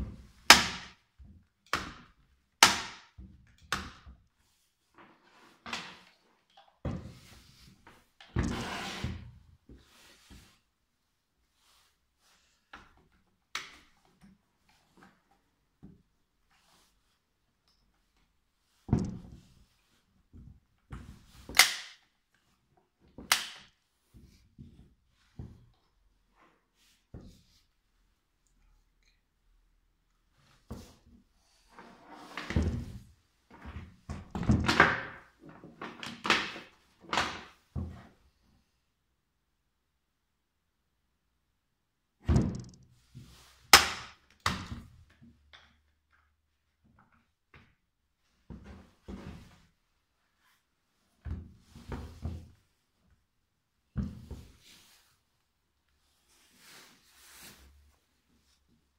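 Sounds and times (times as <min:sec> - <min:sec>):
plastic and metal parts clacking: 0:42.4 - 0:42.9.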